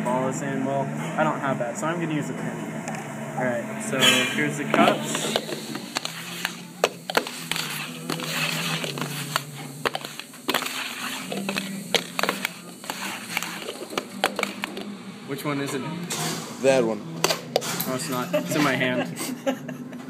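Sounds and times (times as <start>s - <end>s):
plastic cups knocking on wood: 4.7s - 14.9s.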